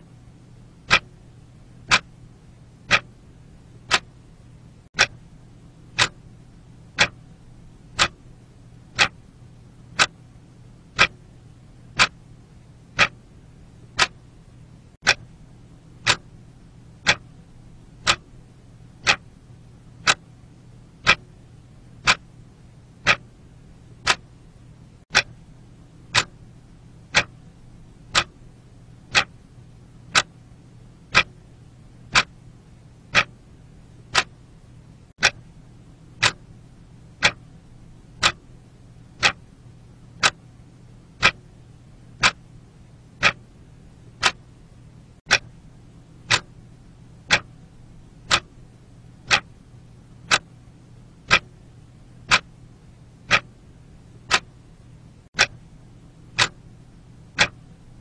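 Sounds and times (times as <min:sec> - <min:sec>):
faint low hum: 0:00.0 - 0:58.0
alarm clock ticking: 0:00.8 - 0:01.1, 0:01.8 - 0:02.1, 0:02.8 - 0:03.1, 0:03.9 - 0:04.1, 0:05.9 - 0:06.2, 0:06.9 - 0:07.2, 0:07.9 - 0:08.2, 0:08.9 - 0:09.2, 0:10.9 - 0:11.2, 0:11.9 - 0:12.2, 0:12.9 - 0:13.2, 0:13.9 - 0:14.2, 0:16.0 - 0:16.3, 0:17.0 - 0:17.3, 0:18.0 - 0:18.3, 0:19.0 - 0:19.2, 0:21.0 - 0:21.2, 0:22.0 - 0:22.2, 0:23.0 - 0:23.2, 0:24.0 - 0:24.2, 0:25.1 - 0:25.4, 0:26.1 - 0:26.4, 0:27.0 - 0:27.4, 0:28.1 - 0:28.4, 0:29.1 - 0:29.4, 0:31.1 - 0:31.4, 0:32.1 - 0:32.3, 0:33.1 - 0:33.3, 0:34.1 - 0:34.3, 0:36.2 - 0:36.4, 0:37.1 - 0:37.5, 0:38.2 - 0:38.4, 0:39.2 - 0:39.4, 0:41.2 - 0:41.4, 0:42.2 - 0:42.4, 0:43.2 - 0:43.4, 0:44.2 - 0:44.4, 0:46.2 - 0:46.5, 0:47.2 - 0:47.6, 0:48.2 - 0:48.6, 0:49.3 - 0:49.5, 0:51.3 - 0:51.5, 0:52.2 - 0:52.5, 0:53.3 - 0:53.5, 0:54.2 - 0:54.5, 0:56.3 - 0:56.6, 0:57.3 - 0:57.6.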